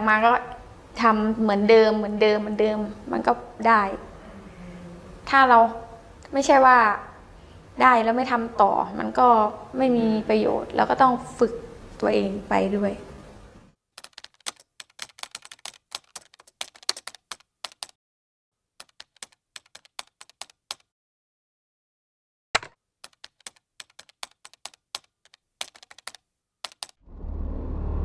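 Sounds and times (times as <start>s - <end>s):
keyboard key clicks: 22.6s - 27.0s.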